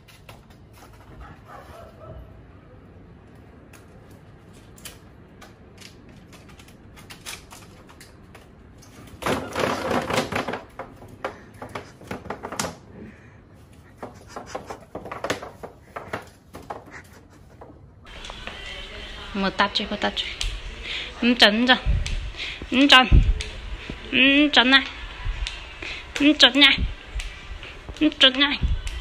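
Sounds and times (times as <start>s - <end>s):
bamboo tray clattering on tiles: 5.9s - 13.0s, 13.8s - 17.8s.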